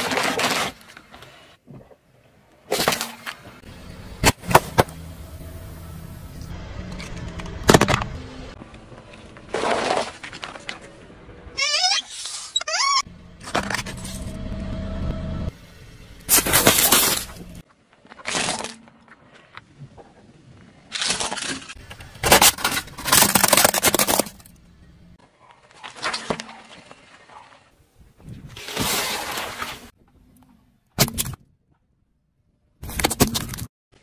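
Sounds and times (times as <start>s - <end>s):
car tyre crushing objects: 2.6s - 11.5s, 13.3s - 14.8s, 16.3s - 27.7s.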